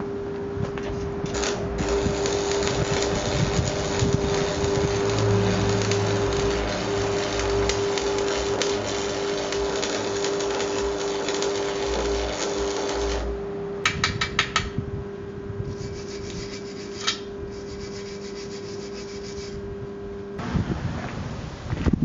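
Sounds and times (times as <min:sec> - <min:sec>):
steady hum: 0:00.0 - 0:22.0
welding arc crackling: 0:01.2 - 0:13.4
scraping at metal weld: 0:01.3 - 0:13.3, 0:15.6 - 0:19.6.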